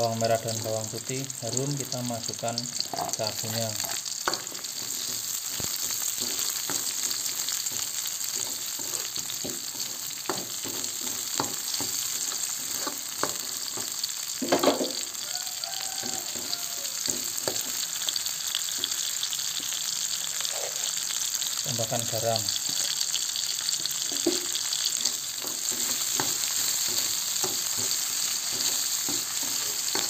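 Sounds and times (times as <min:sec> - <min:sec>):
food sizzling in hot oil: 0:00.0 - 0:30.0
metal spatula scraping wok: 0:02.8 - 0:13.9.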